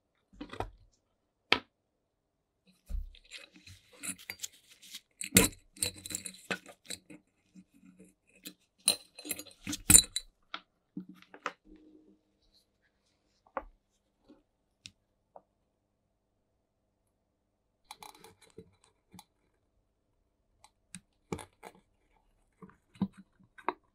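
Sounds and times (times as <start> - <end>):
metal parts clicking and clinking: 3.1 - 7.2, 8.9 - 10.3.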